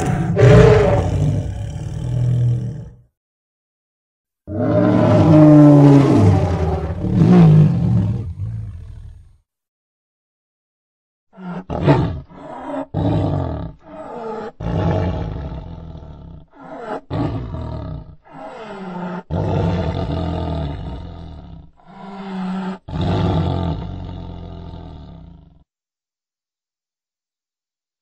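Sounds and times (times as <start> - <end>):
dinosaur roars: 0.0 - 3.0, 4.5 - 9.4, 11.4 - 25.6.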